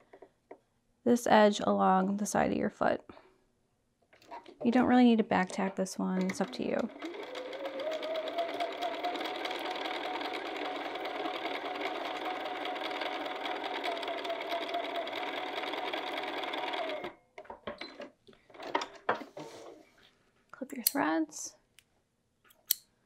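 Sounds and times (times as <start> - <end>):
sewing machine stitching: 6.2 - 17.2.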